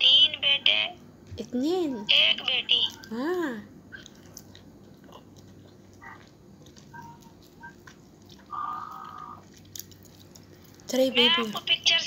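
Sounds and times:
person chewing: 3.9s - 10.9s.

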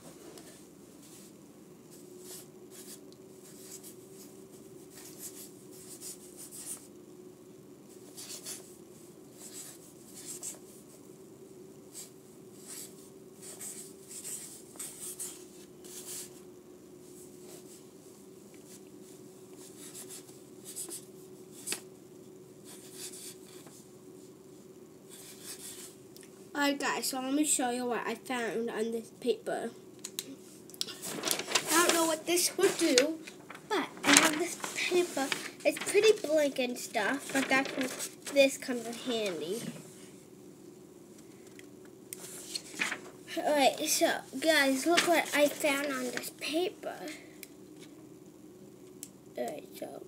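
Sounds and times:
steady low hum: 0.0s - 50.0s
paper scratching and rustling: 30.9s - 39.9s, 42.2s - 46.6s.

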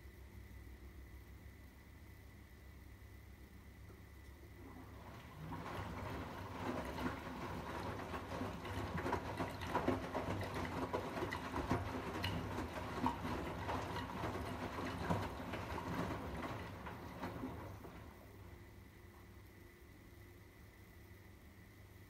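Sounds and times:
washing machine drum tumbling: 4.6s - 18.7s.

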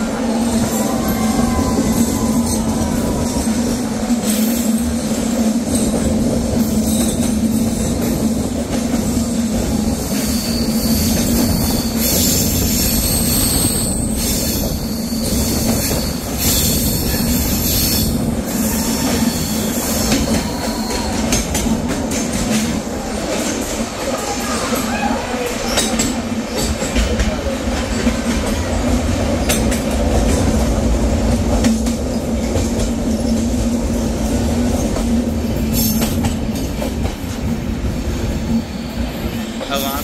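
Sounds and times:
train rumbling on rails: 0.0s - 40.0s
train wheels squealing: 6.8s - 7.9s, 9.8s - 21.6s, 38.5s - 40.0s.

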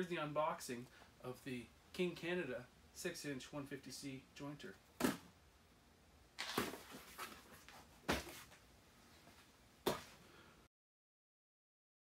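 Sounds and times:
cardboard rustling: 6.4s - 8.6s.

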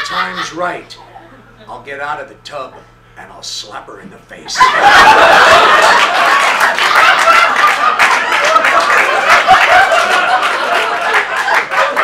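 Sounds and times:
audience laughing: 0.0s - 1.6s, 4.6s - 12.0s
audience applauding: 5.5s - 12.0s.

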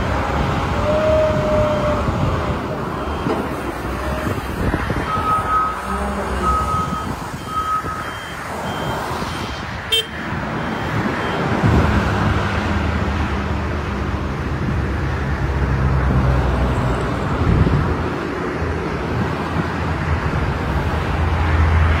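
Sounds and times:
diesel engine running: 0.0s - 15.6s
high beeps: 5.0s - 9.6s.

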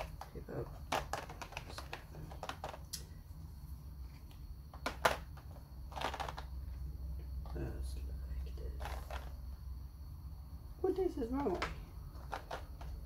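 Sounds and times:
plastic containers clicking: 0.0s - 3.0s, 4.7s - 6.5s, 11.4s - 13.0s
low steady hum: 0.0s - 13.0s.

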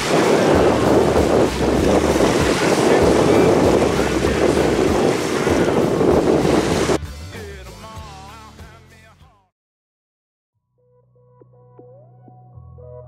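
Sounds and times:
choppy sea water: 0.0s - 7.0s
wind buffeting microphone: 0.0s - 7.0s.

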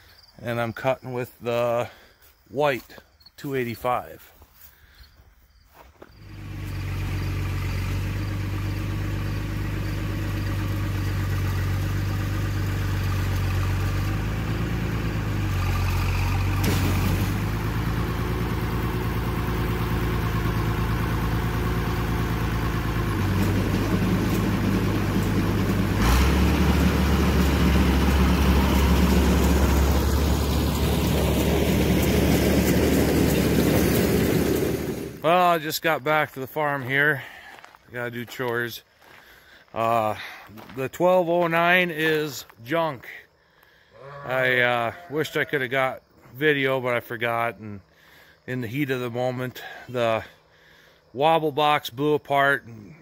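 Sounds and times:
tractor engine running: 6.2s - 38.6s.

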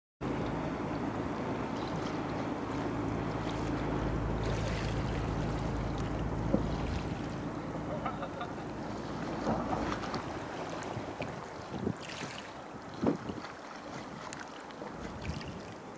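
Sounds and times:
steady low hum: 0.2s - 11.7s
sea water against breakwater: 0.2s - 15.9s
wind on microphone: 9.6s - 14.4s, 15.0s - 15.8s.

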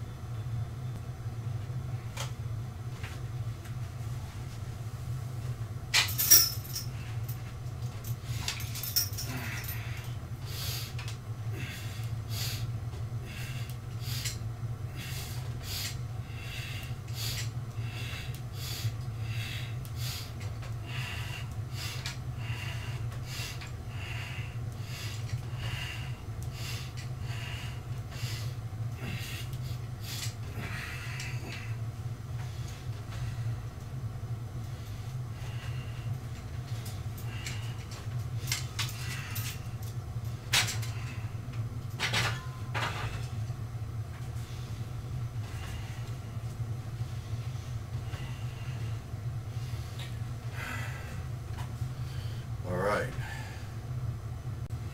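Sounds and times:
steady low hum: 0.0s - 54.9s
person breathing hard: 8.1s - 33.7s, 34.6s - 41.5s, 47.0s - 52.6s, 53.2s - 53.8s.

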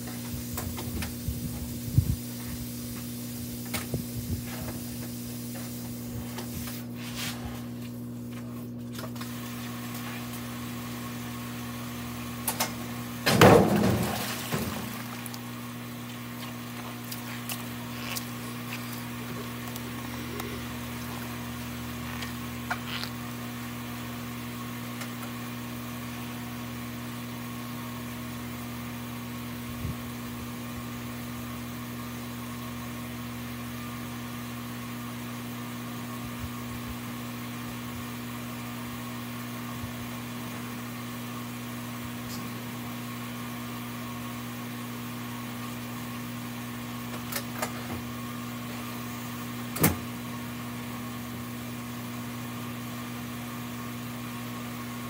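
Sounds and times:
electric motor humming: 7.6s - 27.0s.

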